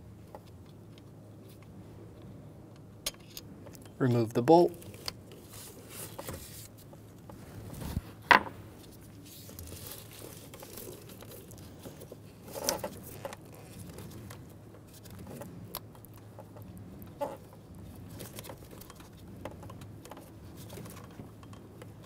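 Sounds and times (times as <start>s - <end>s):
gloved hand rustling among parts: 4.7s - 15.2s.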